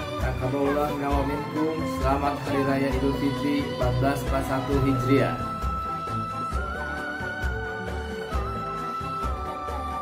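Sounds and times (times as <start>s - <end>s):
wavering melody line: 0.0s - 10.0s.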